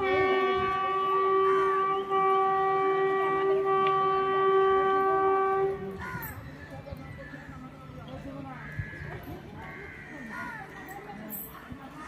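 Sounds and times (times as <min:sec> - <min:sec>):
locomotive horn blast: 0:00.0 - 0:06.0.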